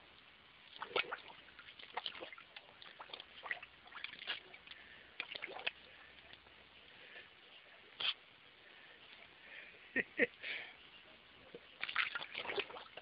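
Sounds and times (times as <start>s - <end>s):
water splashing in a bucket: 0.6s - 6.6s, 11.6s - 13.0s.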